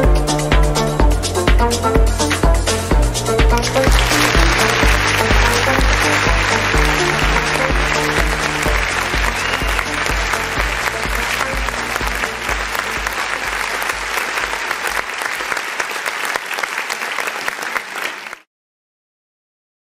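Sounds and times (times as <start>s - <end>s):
kick drum beat: 0.0s - 14.6s
progressive house music: 0.0s - 15.1s
applause: 3.6s - 18.5s.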